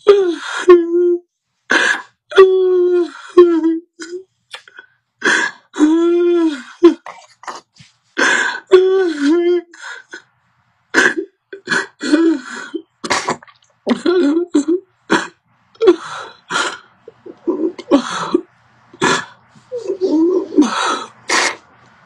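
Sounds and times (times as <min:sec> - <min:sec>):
gasping breaths: 0:15.1 - 0:21.8.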